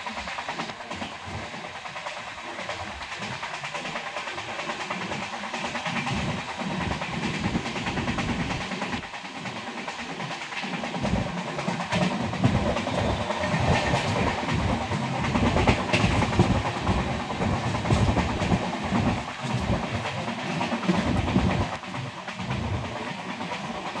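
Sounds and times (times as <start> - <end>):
train clattering over track: 0.0 - 24.0
train wheels rumbling on rails: 0.0 - 24.0.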